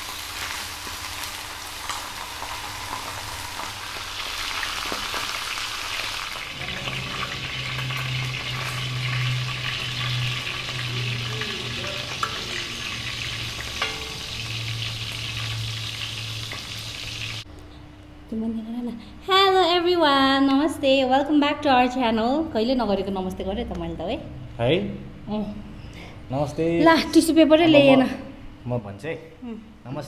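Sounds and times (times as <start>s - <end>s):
meat sizzling while frying: 0.0s - 17.5s
low hum: 6.4s - 19.2s.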